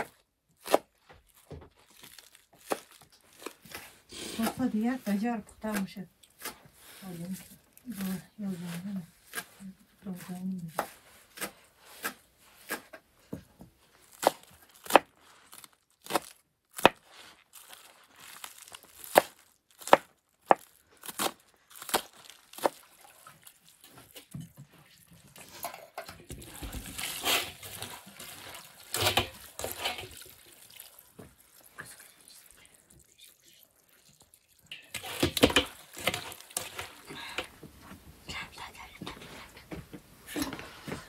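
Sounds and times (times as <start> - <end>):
rustling of onions by hand: 0.0 - 38.0
water running into metal bowl: 34.1 - 36.4.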